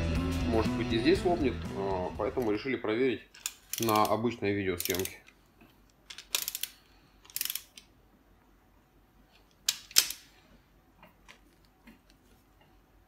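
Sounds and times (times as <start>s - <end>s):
ratchet wrench clicking: 3.4s - 4.2s, 4.8s - 5.2s, 6.1s - 7.8s.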